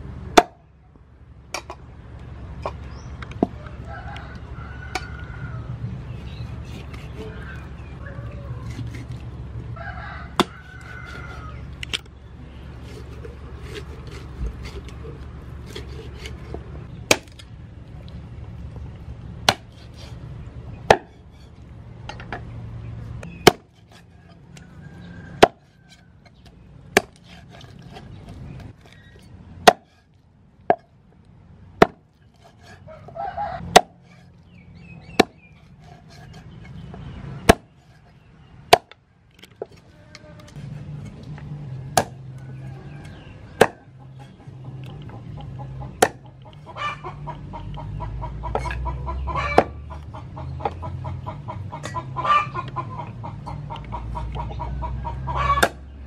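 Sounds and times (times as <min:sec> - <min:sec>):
cleaver chopping on wooden block: 0:10.4 - 0:11.4, 0:19.4 - 0:19.9, 0:20.9 - 0:21.2, 0:23.4 - 0:24.1, 0:25.4 - 0:25.7, 0:26.9 - 0:28.9, 0:29.6 - 0:30.0, 0:31.8 - 0:32.8, 0:33.7 - 0:34.2, 0:35.1 - 0:36.4, 0:37.4 - 0:38.0, 0:38.7 - 0:39.0, 0:41.9 - 0:42.2, 0:43.6 - 0:43.9, 0:45.8 - 0:46.3, 0:55.6 - 0:55.8.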